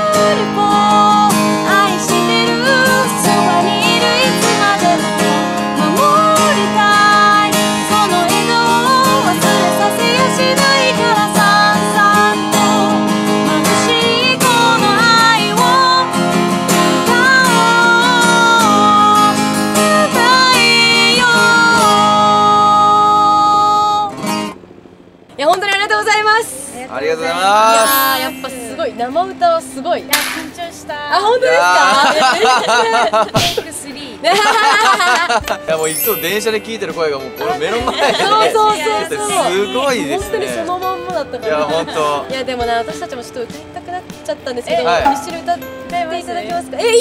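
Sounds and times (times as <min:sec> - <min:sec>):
woman singing: 0:00.0 - 0:16.2, 0:17.0 - 0:24.1, 0:27.8 - 0:29.8, 0:38.0 - 0:47.0
acoustic guitar strumming: 0:00.0 - 0:25.2, 0:27.4 - 0:31.1, 0:34.6 - 0:47.0.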